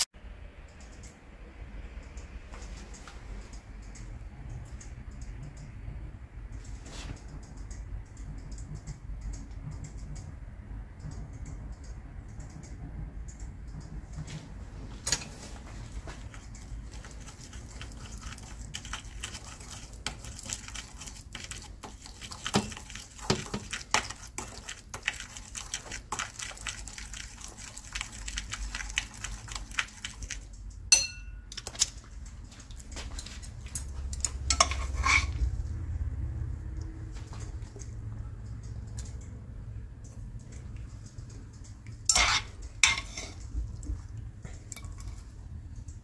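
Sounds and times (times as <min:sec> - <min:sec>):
low steady hum: 0:00.0 - 0:46.0
chopsticks scraping ceramic bowl: 0:34.5 - 0:35.4, 0:42.1 - 0:43.4.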